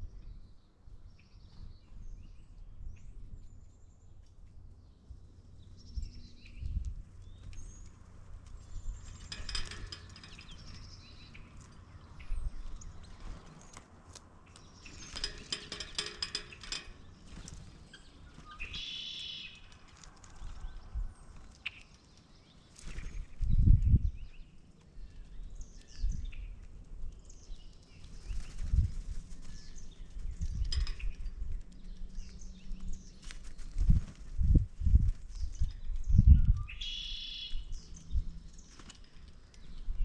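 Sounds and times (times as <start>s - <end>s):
rapid bird rattling: 7.2s - 13.8s, 14.4s - 23.5s, 24.4s - 36.1s
high bird chirps: 17.8s - 19.7s, 35.6s - 38.2s.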